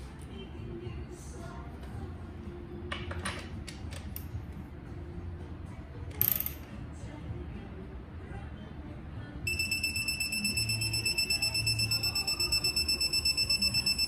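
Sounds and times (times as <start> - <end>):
high-pitched electronic beeping: 9.5 - 14.0.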